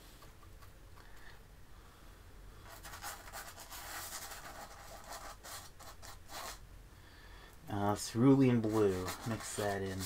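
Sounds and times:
paintbrush scrubbing canvas: 8.4 - 10.0.

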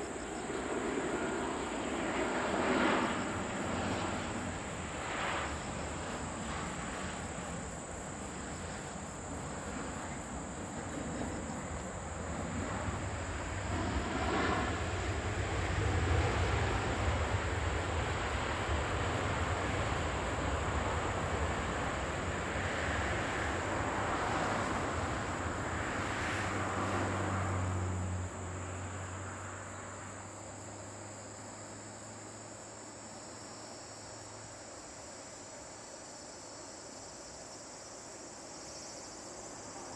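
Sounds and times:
jet engines rushing: 0.0 - 28.2
crickets chirping: 0.0 - 39.9.

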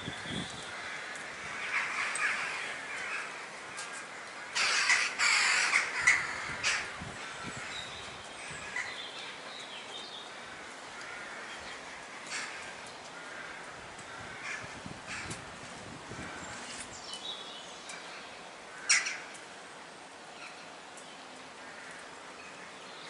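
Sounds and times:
crows cawing: 0.7 - 9.0, 10.3 - 16.8, 18.7 - 19.7, 21.6 - 22.2.

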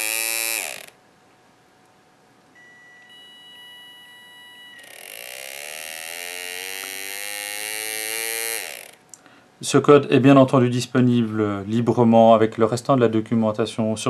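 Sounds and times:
small electric motor whine: 0.0 - 1.0, 2.6 - 9.0
faint high tone: 2.6 - 5.1.

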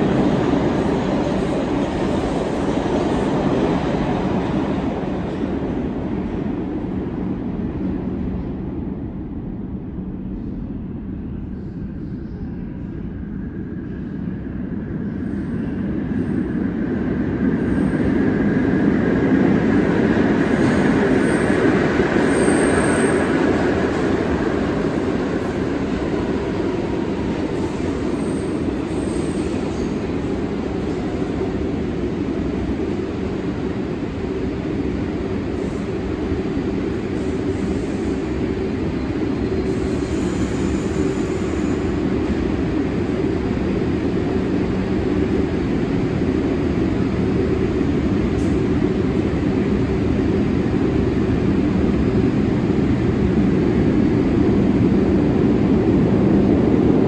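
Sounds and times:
subway train rumbling: 0.0 - 57.0.

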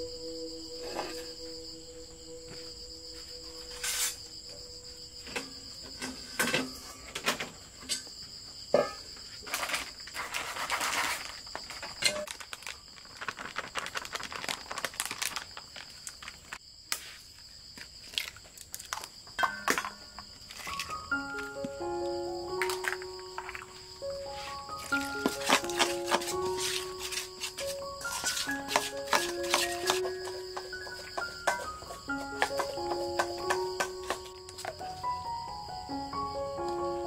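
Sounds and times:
high insect drone: 0.0 - 37.0
plastic packet rustling: 9.5 - 16.6, 20.5 - 21.0, 22.6 - 34.8.

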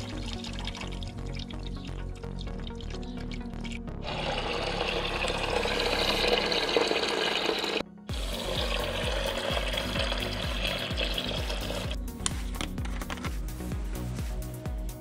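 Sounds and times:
liquid pouring: 0.0 - 12.0
background music with beat: 8.0 - 15.0.

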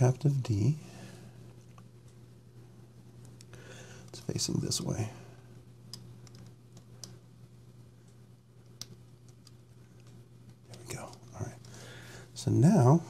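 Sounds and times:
small metal parts clicking: 5.9 - 7.2.

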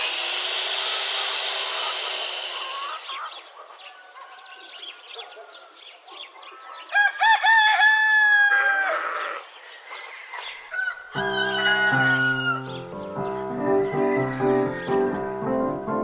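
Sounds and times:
circular saw cutting wood: 0.0 - 3.5, 11.2 - 12.9
rooster crowing: 6.9 - 9.4, 10.1 - 12.9, 13.7 - 15.1.

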